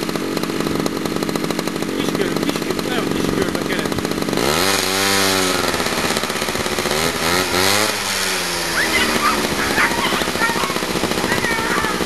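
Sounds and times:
motor reeling line: 0:00.0 - 0:12.0
short high-pitched calls: 0:08.6 - 0:10.8.

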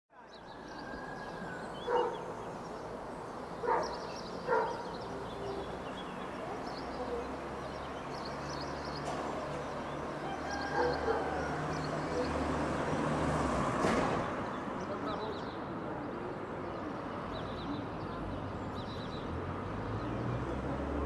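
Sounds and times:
outdoor background noise: 0:00.1 - 0:21.0
dog barking: 0:01.8 - 0:02.3, 0:03.6 - 0:05.1, 0:10.7 - 0:11.4.

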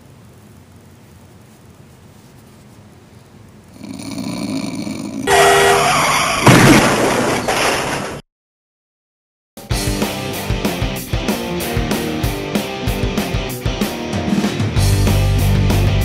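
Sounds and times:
horn-like blast: 0:05.3 - 0:06.5
crash: 0:05.3 - 0:08.2
rock guitar music: 0:09.6 - 0:16.0.

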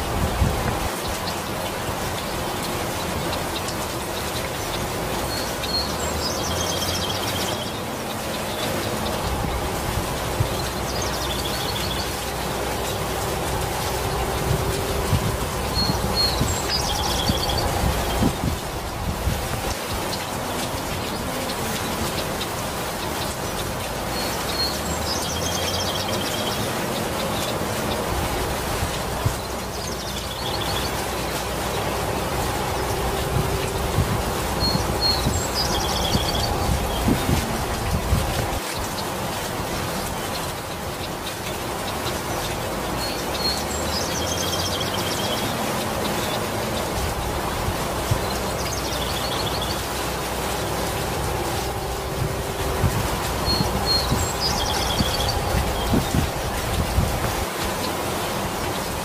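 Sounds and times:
rain falling on foliage: 0:00.0 - 0:59.0
water drips: 0:00.0 - 0:59.0
bird twittering trills: 0:02.1 - 0:09.6, 0:10.4 - 0:13.2, 0:15.0 - 0:18.6, 0:32.6 - 0:38.1, 0:47.8 - 0:51.0, 0:52.8 - 0:56.7
bird chirping: 0:15.6 - 0:18.4, 0:34.5 - 0:37.4, 0:53.3 - 0:56.4.

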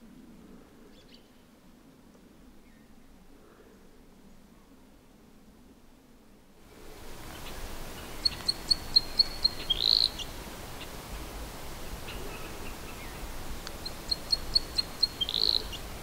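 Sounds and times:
soft steady hiss: 0:00.0 - 0:16.0
songbird singing: 0:07.2 - 0:16.0.

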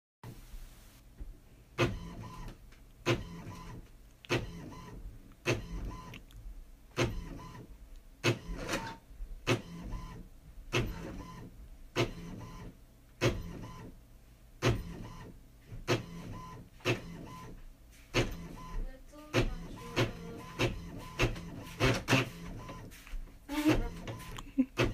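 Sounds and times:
printer carriage whirring: 0:01.8 - 0:06.2, 0:07.0 - 0:13.9, 0:14.6 - 0:24.9
printer carriage clacking: 0:19.3 - 0:22.4.

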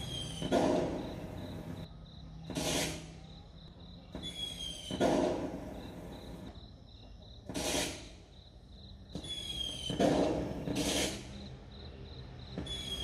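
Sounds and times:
recorded firework bangs with crackle: 0:04.9 - 0:06.1.

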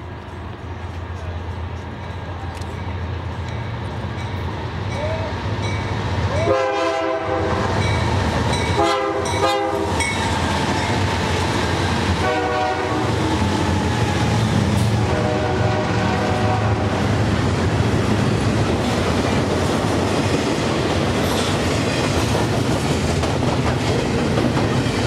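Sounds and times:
freight train rumbling past: 0:00.0 - 0:25.0
locomotive air horn: 0:06.4 - 0:07.7, 0:08.8 - 0:09.9, 0:12.2 - 0:13.2, 0:14.8 - 0:17.0.

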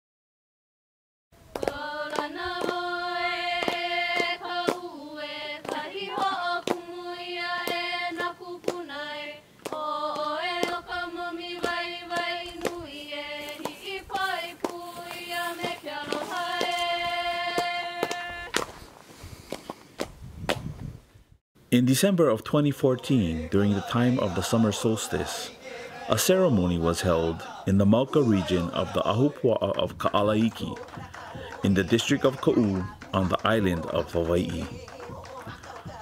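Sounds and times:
voices chanting long notes: 0:01.6 - 0:18.6, 0:22.6 - 0:36.0
drum beats: 0:28.4 - 0:36.0.

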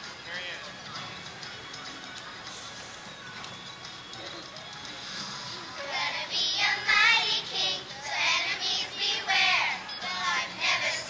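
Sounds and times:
girls singing together: 0:05.8 - 0:11.0.

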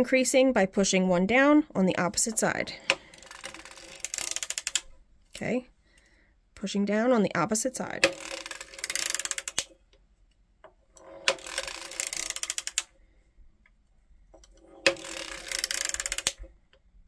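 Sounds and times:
knitting machine needles clicking: 0:02.2 - 0:05.5, 0:07.9 - 0:09.8, 0:10.9 - 0:12.9, 0:14.4 - 0:16.8.

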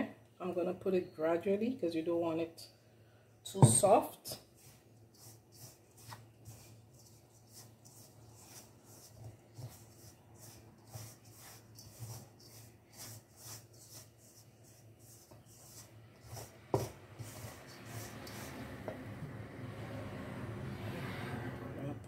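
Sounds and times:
wooden spoon scraping bowl: 0:04.6 - 0:19.0.

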